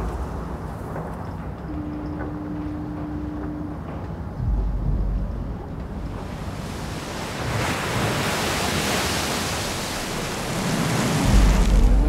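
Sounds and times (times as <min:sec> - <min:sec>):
rushing sea: 0:01.7 - 0:12.0
wind noise: 0:04.2 - 0:12.0
deep low rumble: 0:04.3 - 0:06.5, 0:11.2 - 0:12.0.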